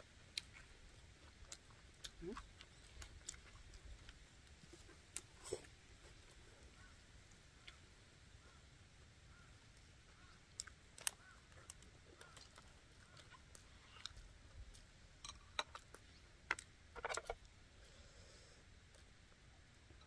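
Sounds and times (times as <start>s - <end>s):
chewing: 0.3s - 6.9s, 10.2s - 16.0s.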